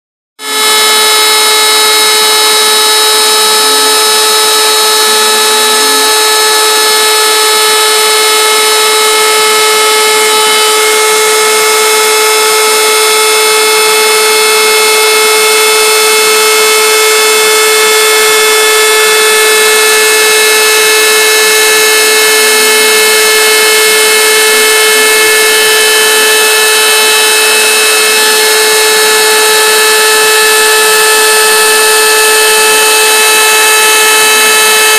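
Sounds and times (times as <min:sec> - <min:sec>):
router spindle high-pitched whine: 0:00.4 - 0:34.9
lower tones stepping in pitch: 0:09.3 - 0:12.2.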